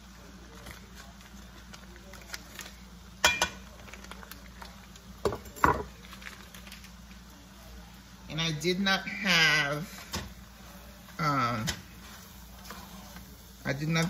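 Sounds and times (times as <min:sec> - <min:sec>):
wrapper rustling: 0:00.2 - 0:02.8, 0:03.6 - 0:05.2, 0:05.9 - 0:07.3.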